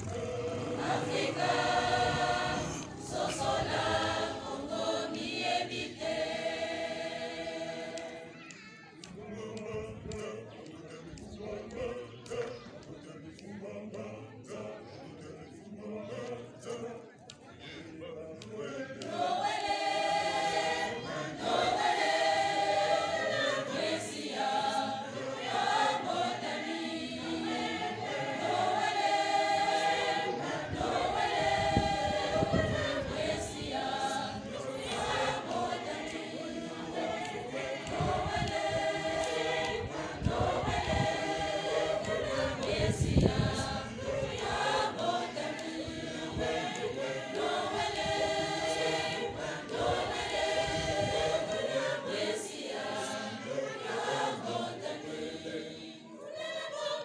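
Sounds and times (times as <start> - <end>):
choir singing: 0.0 - 57.0.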